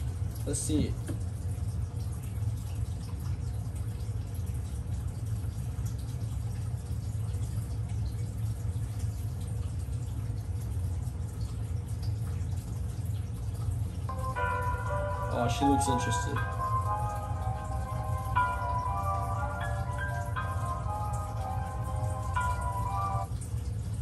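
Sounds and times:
equipment humming: 14.0s - 24.0s.

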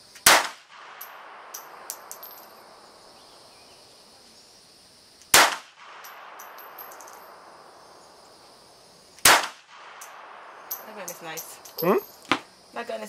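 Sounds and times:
pistol shots with echo: 0.2s - 2.3s, 5.3s - 7.0s, 9.2s - 10.8s
brass casing pinging: 10.0s - 12.4s.

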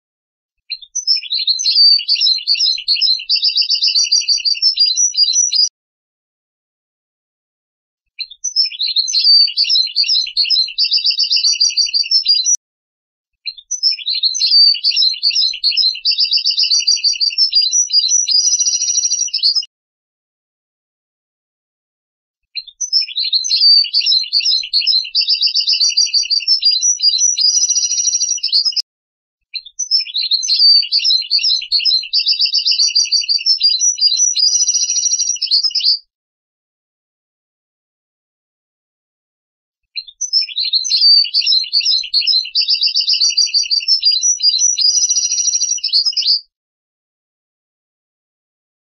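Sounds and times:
finch singing: 0.7s - 5.7s, 8.2s - 12.6s, 13.4s - 19.7s, 22.6s - 28.8s, 29.5s - 36.1s, 40.0s - 46.5s.

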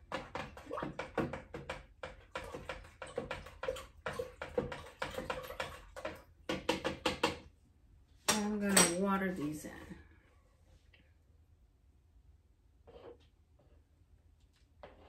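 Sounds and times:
spoon knocking plastic container: 0.0s - 7.5s.

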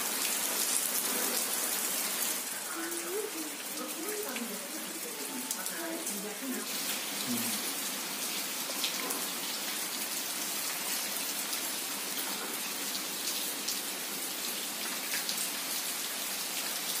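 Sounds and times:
steady rain hiss: 0.0s - 17.0s
raindrops ticking: 2.5s - 7.7s.

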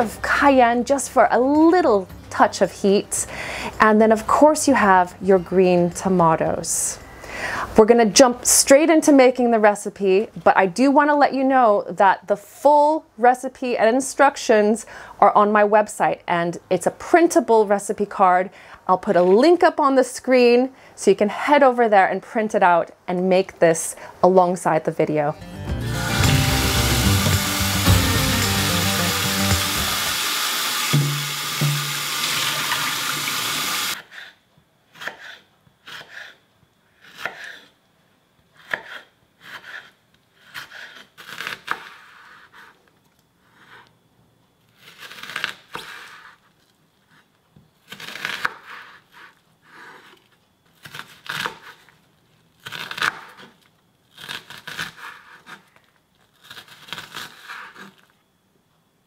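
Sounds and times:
tap water running into metal bowl: 29.2s - 34.0s
knife chopping on wooden board: 30.9s - 32.2s.

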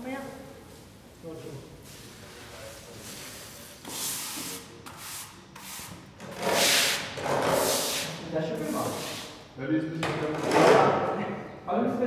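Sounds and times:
push broom scraping wet floor: 5.6s - 9.3s.

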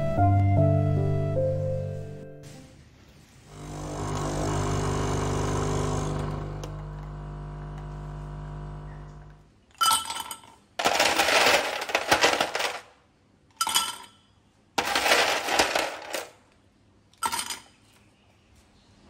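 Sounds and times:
ice cubes clinking in glass: 9.8s - 12.9s, 14.8s - 16.4s, 17.2s - 17.8s.

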